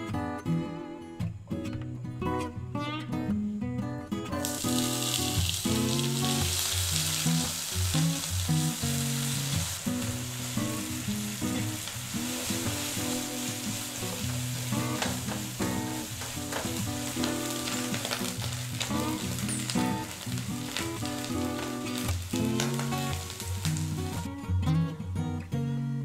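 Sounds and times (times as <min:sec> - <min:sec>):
corn sizzling in butter: 0:04.4 - 0:24.3.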